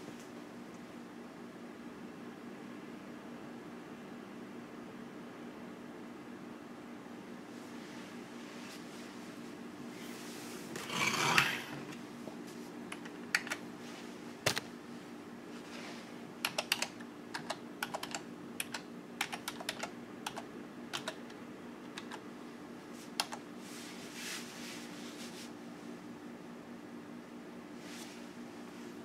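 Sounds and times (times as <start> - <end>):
keyboard typing clicks: 12.9 - 13.6, 16.4 - 22.2, 23.2 - 23.4.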